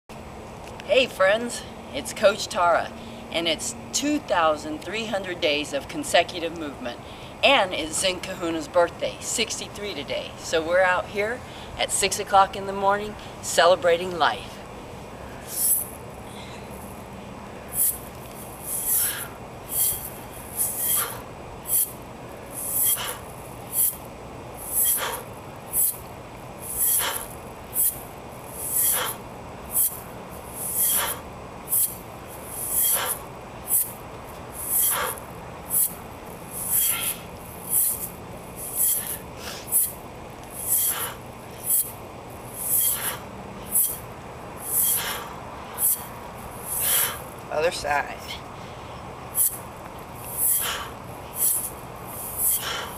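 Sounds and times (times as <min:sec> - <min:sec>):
mace swishing through air: 0:15.4 - 0:16.0, 0:17.7 - 0:44.0, 0:44.6 - 0:47.3, 0:49.4 - 0:52.9.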